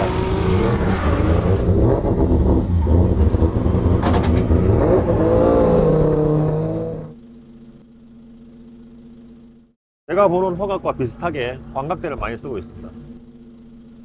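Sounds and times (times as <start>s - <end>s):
car engine revving loudly: 0.0s - 7.2s.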